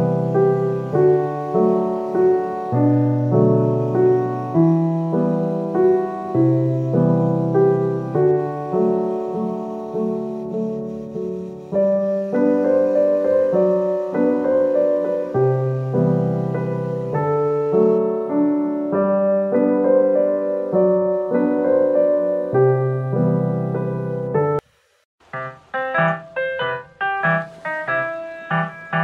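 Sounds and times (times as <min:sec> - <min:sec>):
gentle piano music: 0:00.0 - 0:24.6, 0:25.3 - 0:29.0.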